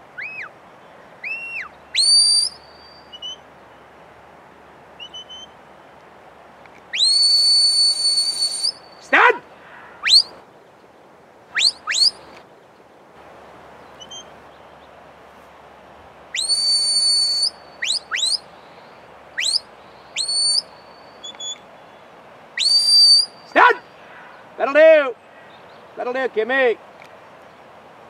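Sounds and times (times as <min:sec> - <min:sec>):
rising whistles: 0:00.2 - 0:00.5, 0:01.2 - 0:03.4, 0:05.0 - 0:05.6, 0:06.9 - 0:09.2, 0:10.0 - 0:10.4, 0:11.5 - 0:12.3, 0:16.3 - 0:21.7, 0:22.6 - 0:23.9
long held whistle notes: 0:01.2 - 0:03.4, 0:06.9 - 0:09.0, 0:11.6 - 0:12.2, 0:16.4 - 0:18.4, 0:19.4 - 0:19.6, 0:20.2 - 0:21.6, 0:22.6 - 0:23.4.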